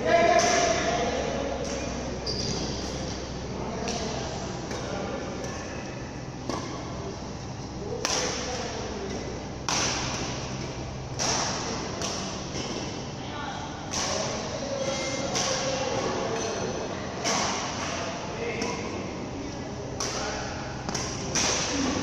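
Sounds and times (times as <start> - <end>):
steady low hum: 0.0 - 22.0
badminton rackets hitting shuttlecock: 3.8 - 7.0, 7.9 - 13.0, 13.9 - 14.5, 15.3 - 16.6, 20.0 - 22.0.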